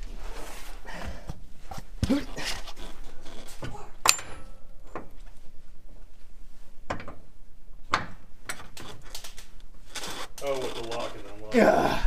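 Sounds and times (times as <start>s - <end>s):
wrench clinking on metal: 4.0s - 4.6s.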